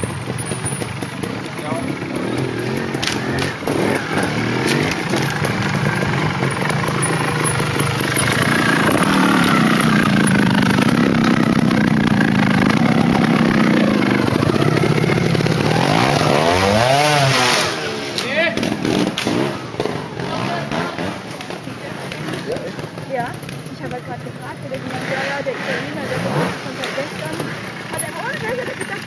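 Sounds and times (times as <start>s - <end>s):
motorcycle engine revving: 0.0s - 29.0s.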